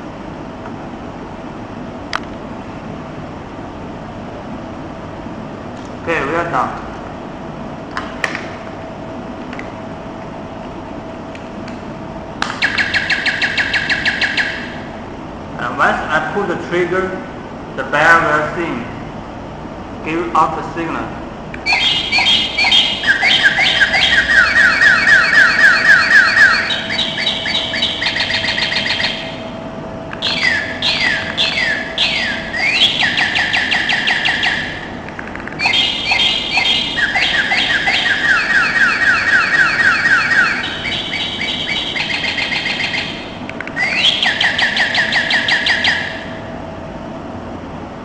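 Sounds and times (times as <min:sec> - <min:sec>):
doorbell birdsong tune: 0:21.7 - 0:29.4, 0:30.2 - 0:34.8, 0:35.6 - 0:46.2.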